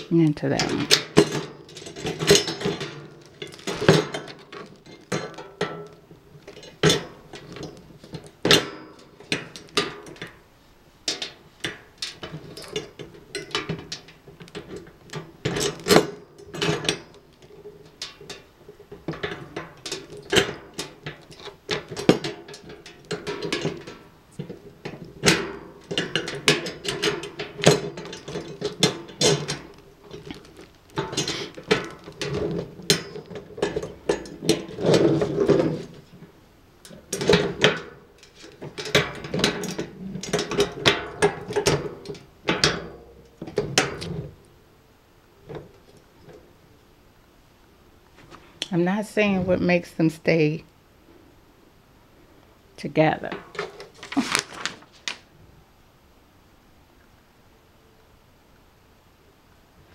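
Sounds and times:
metal basket rattling: 0.0s - 44.4s.

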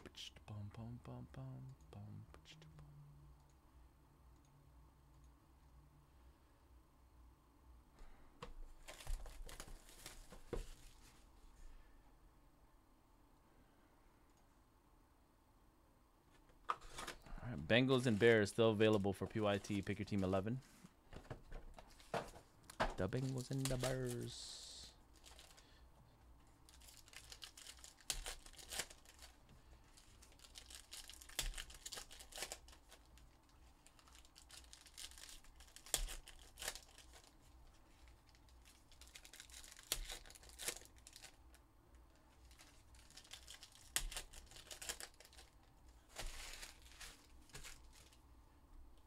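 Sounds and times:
foil packs tearing and crinkling: 23.1s - 24.3s, 26.7s - 37.4s, 38.2s - 41.4s, 42.5s - 48.2s.

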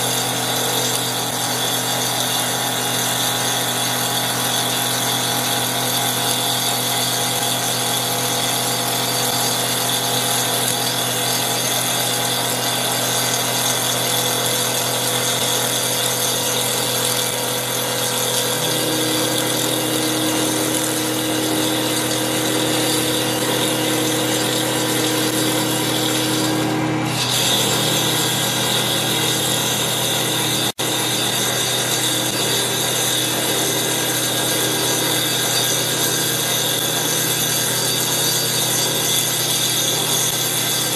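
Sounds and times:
wood lathe saw blade cutting wood: 0.0s - 40.9s.

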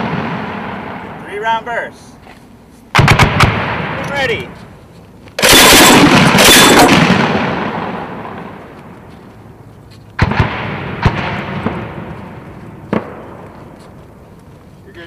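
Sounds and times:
grenade launcher burst firing: 3.0s - 4.0s, 5.4s - 8.4s, 10.2s - 12.0s.

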